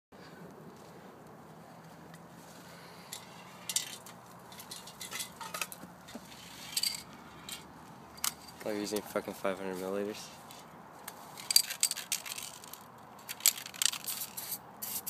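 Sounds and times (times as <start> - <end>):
metal cans clinking together: 3.7 - 5.8.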